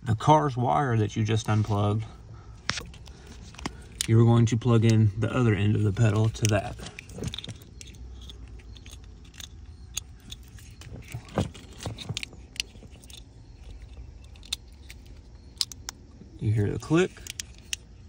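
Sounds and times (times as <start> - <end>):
plastic connectors clicking: 6.0 - 16.0, 17.1 - 17.9.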